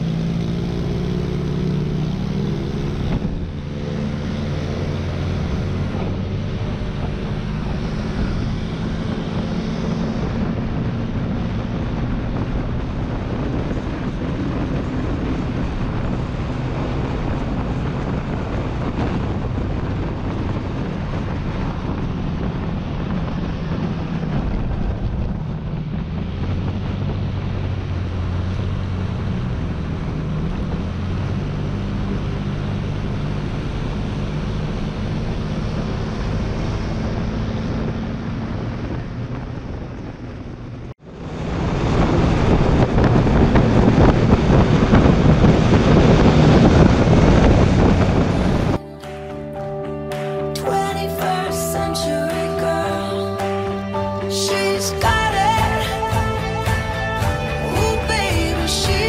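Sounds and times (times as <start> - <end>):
wind noise on microphone: 0.0 - 49.6
motor scooter engine running: 42.6 - 59.0.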